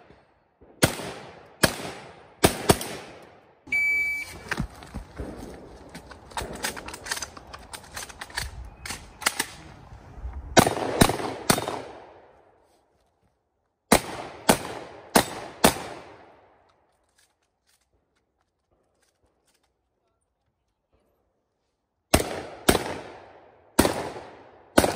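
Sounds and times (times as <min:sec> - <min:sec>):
shotgun blasts with echo: 0:00.0 - 0:03.4, 0:10.6 - 0:12.3, 0:22.1 - 0:24.9.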